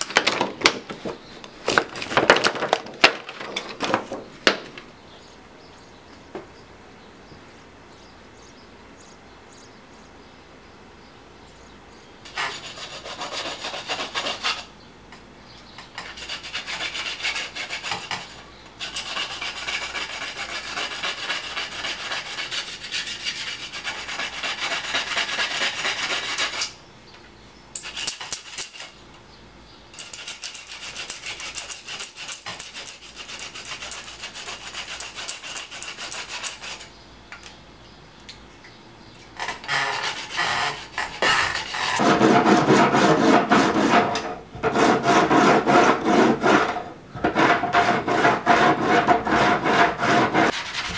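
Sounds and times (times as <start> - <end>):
hand tool scraping drum hoop: 15.8 - 26.8, 30.0 - 36.9, 39.4 - 50.9.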